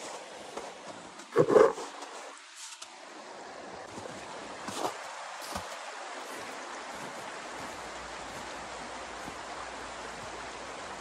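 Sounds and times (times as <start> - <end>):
footsteps in snow: 3.9 - 10.5.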